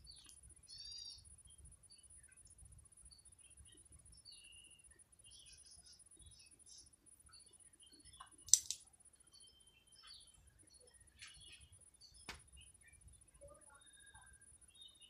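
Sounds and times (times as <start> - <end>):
beaks tapping on hard ground: 8.1 - 8.9.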